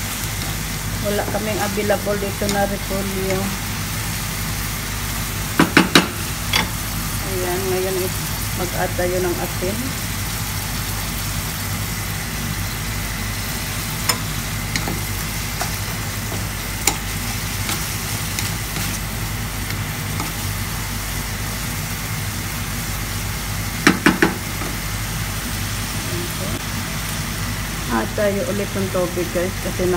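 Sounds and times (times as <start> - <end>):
steady low hum: 0.0 - 23.8.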